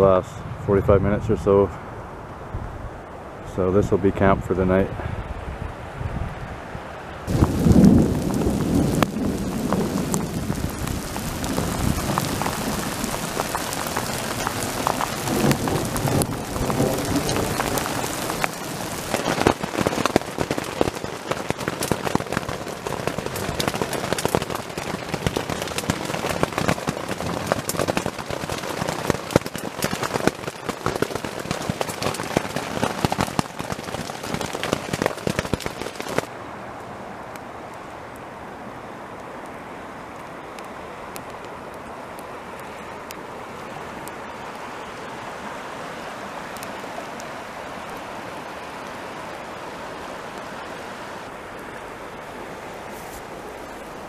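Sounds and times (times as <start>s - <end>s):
low thunder rumbling: 7.3s - 35.0s
hail and rain on a tent: 7.3s - 36.3s, 45.7s - 51.3s.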